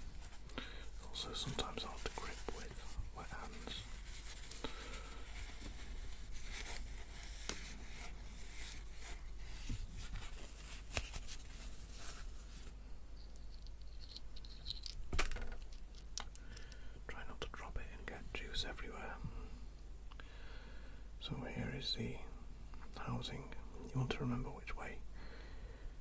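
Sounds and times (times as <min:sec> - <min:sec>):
paper towel rustling: 0:00.0 - 0:12.8
metal parts clicking: 0:13.4 - 0:15.0.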